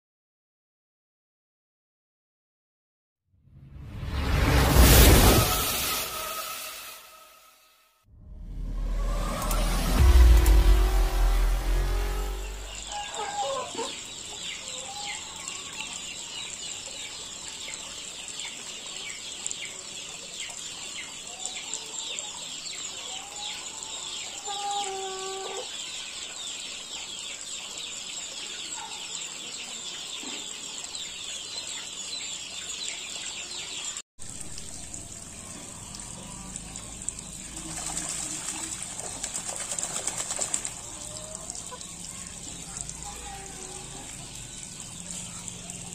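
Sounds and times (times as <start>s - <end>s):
fowl calling: 12.8s - 14.0s.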